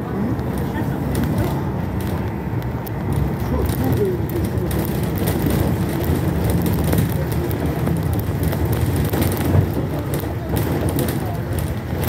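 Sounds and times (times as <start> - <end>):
low rumble of tyres: 0.0 - 12.0.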